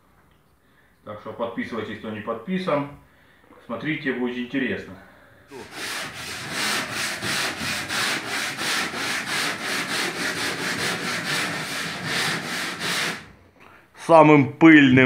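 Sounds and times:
sanding mesh scraping plaster: 0:05.5 - 0:13.4.

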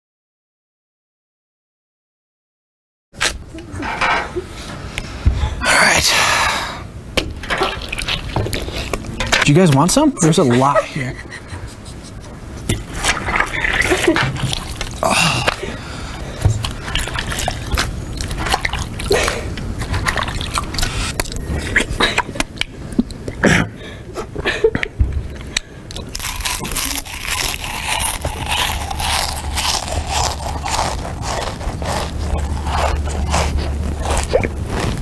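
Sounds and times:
steady low hum: 0:03.2 - 0:35.0
loud watermelon eating: 0:07.5 - 0:10.8, 0:11.7 - 0:23.8, 0:25.3 - 0:35.0.

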